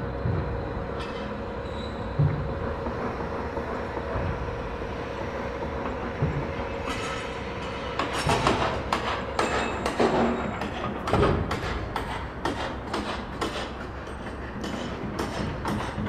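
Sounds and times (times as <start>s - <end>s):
machinery rumble: 0.0s - 16.0s
metallic clanks and knocks: 5.8s - 16.0s.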